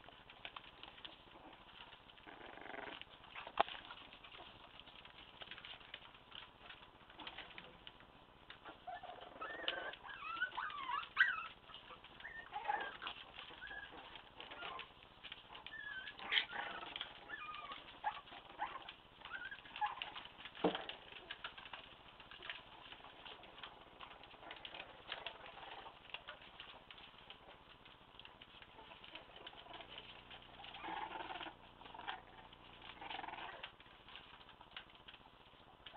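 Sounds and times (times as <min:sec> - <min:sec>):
puppies squeaking and whimpering: 0:08.6 - 0:20.4, 0:28.6 - 0:33.8.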